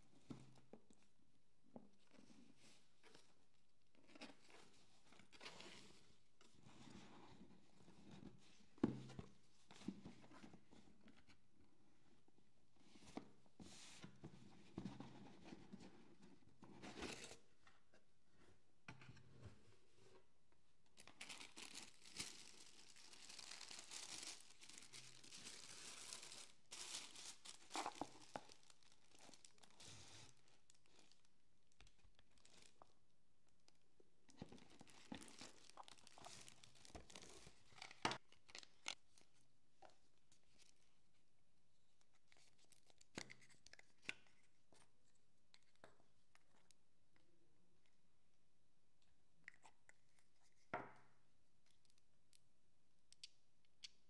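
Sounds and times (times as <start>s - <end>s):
tissue paper rustling: 21.0s - 31.2s.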